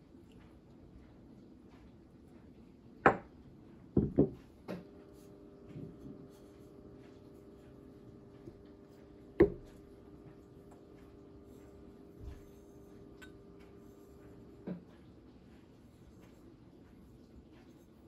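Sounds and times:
glass bottle set on wooden table: 3.1 - 3.3, 4.0 - 6.8, 8.4 - 10.5, 11.3 - 14.8.

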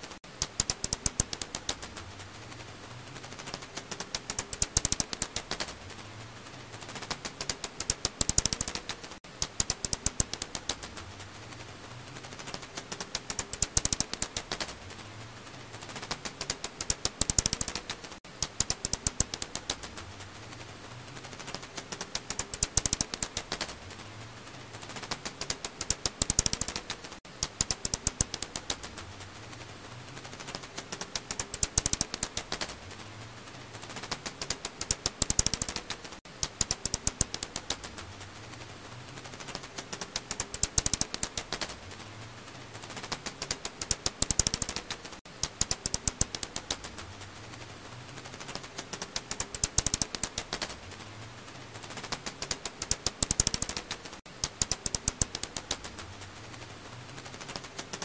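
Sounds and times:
bat echolocation clicks: 0.4 - 2.0, 3.4 - 5.8, 7.0 - 11.0, 12.4 - 14.8, 16.0 - 20.0, 21.4 - 23.8, 25.0 - 29.0, 30.4 - 32.8, 34.0 - 38.0, 39.5 - 41.8, 43.0 - 47.0, 48.4 - 50.8, 51.9 - 56.0.

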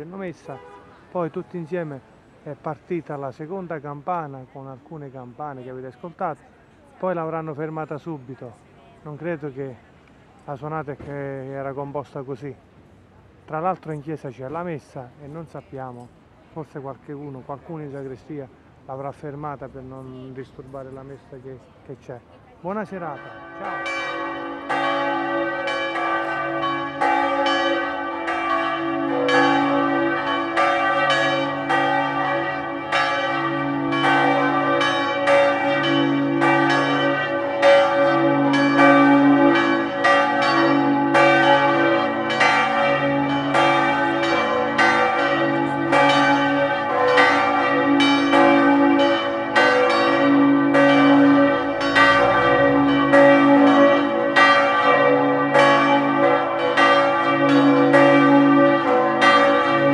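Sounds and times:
church bells pealing: 0.0 - 5.9, 22.8 - 59.9.

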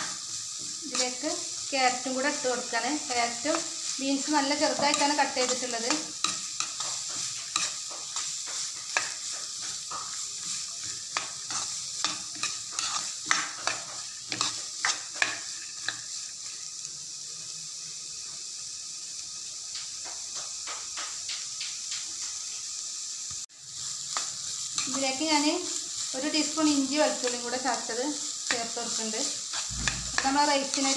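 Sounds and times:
spatula scraping a pan: 0.0 - 16.6, 24.0 - 30.9
vegetables sizzling in a pan: 0.0 - 30.9.

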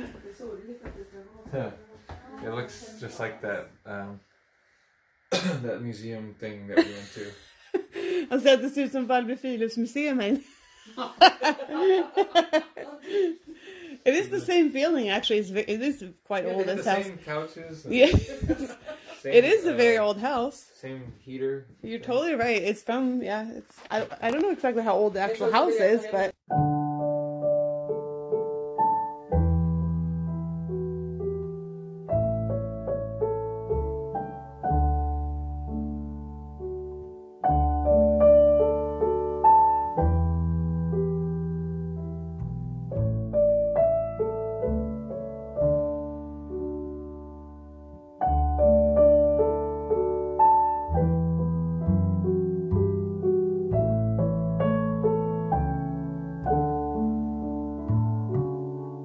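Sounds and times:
slow gentle piano music: 26.5 - 59.0.

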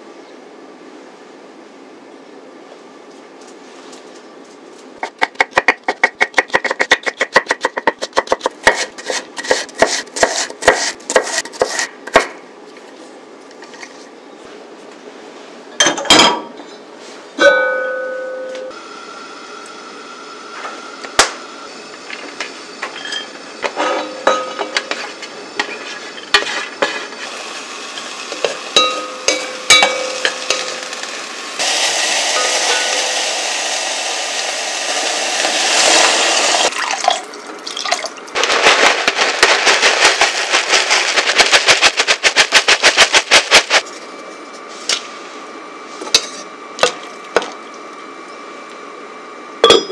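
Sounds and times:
metal pot clank: 23.8 - 25.0, 28.4 - 30.8
steady cooking hiss: 24.8 - 36.7
dry rice crust rattling into pot: 38.4 - 43.8.

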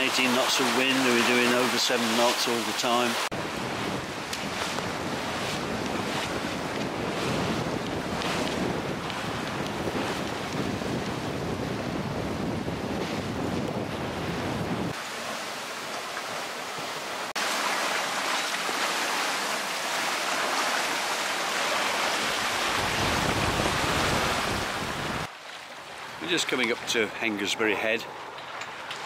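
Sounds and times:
water rushing past hull: 0.0 - 29.0
wind buffeting microphone: 3.3 - 15.0, 22.1 - 25.3.

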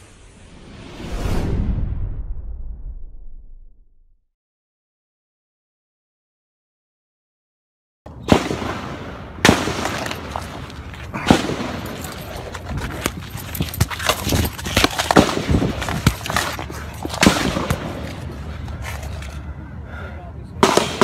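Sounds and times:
rifle shots: 8.2 - 12.2, 14.8 - 16.2, 17.2 - 18.3, 20.6 - 21.0.

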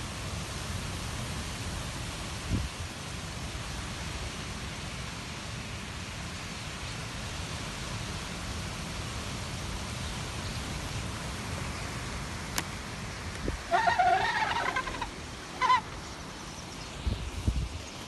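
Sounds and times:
starling flock rushing hiss: 6.4 - 18.0.

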